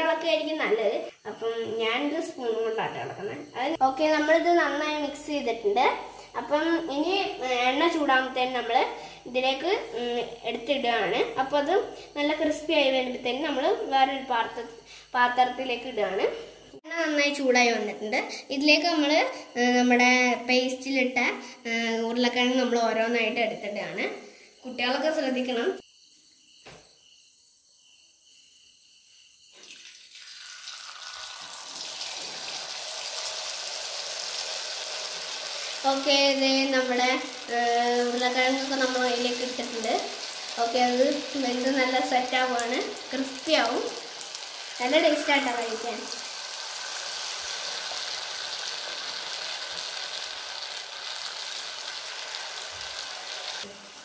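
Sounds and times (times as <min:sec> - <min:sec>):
batter frying in hot oil: 0:29.6 - 0:54.0.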